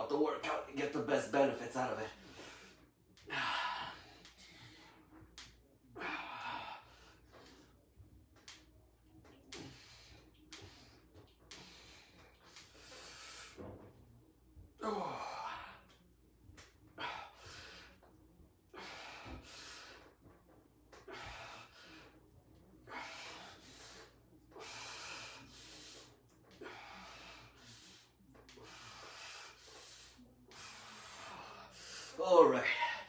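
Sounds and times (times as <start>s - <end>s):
man breathing heavily: 2.1s - 7.8s, 9.5s - 13.8s, 14.8s - 16.0s, 16.9s - 18.1s, 18.7s - 20.2s, 20.9s - 33.0s.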